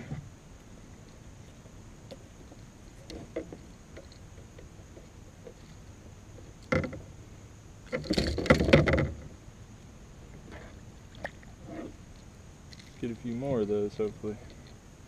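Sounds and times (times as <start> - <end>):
rattling on plastic kayak: 6.4 - 7.1, 7.9 - 9.4.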